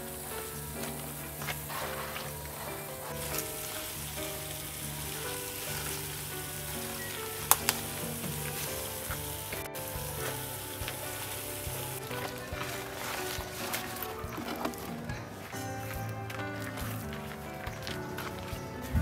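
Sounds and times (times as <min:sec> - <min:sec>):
crackling hiss: 0:00.0 - 0:15.2
slow held music notes: 0:00.0 - 0:19.0.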